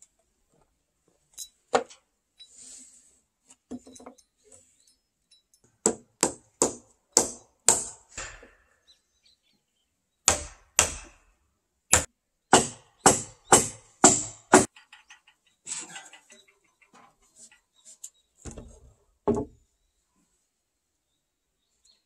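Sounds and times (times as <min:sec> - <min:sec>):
hammer blows on timber: 0:11.9 - 0:14.7.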